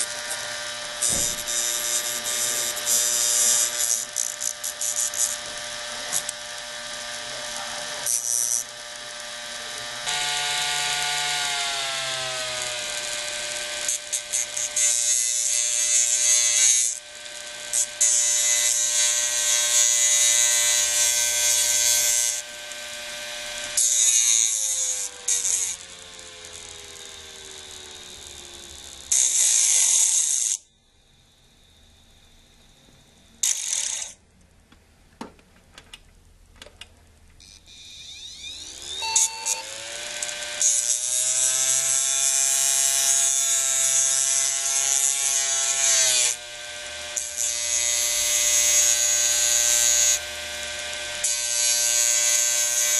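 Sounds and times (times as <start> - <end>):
motor whine: 0.0 - 1.9, 37.4 - 40.6.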